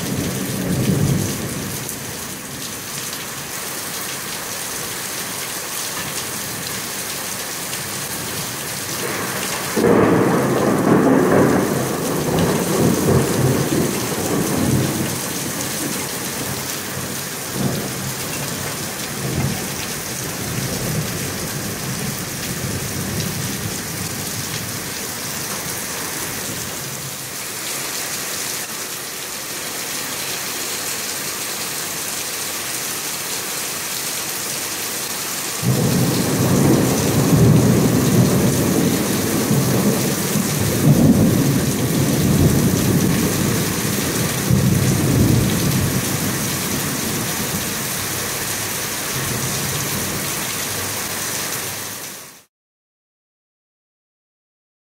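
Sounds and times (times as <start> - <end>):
rain falling steadily: 0.0 - 52.5
thunder rumbling: 9.0 - 24.9, 35.6 - 47.8.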